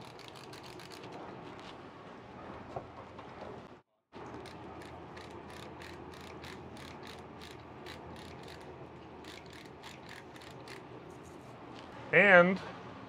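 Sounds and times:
spice grinder ratcheting clicks: 0:00.0 - 0:01.1, 0:04.4 - 0:10.8.

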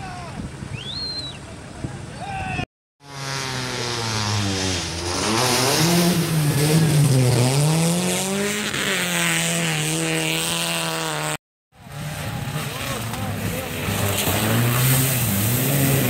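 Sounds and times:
rally car engine revving: 0:03.0 - 0:16.0
water spraying: 0:14.0 - 0:16.0.

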